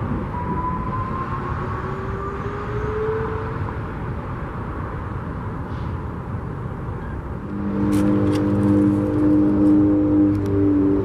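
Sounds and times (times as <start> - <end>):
steady traffic noise: 0.0 - 11.0
distant siren whoop tone: 0.2 - 3.8, 7.5 - 11.0.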